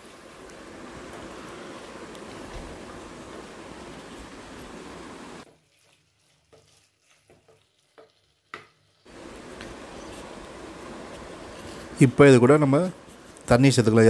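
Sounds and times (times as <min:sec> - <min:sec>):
food sizzling in pot: 0:00.0 - 0:14.0
wooden spatula tapping and scraping: 0:05.4 - 0:12.0.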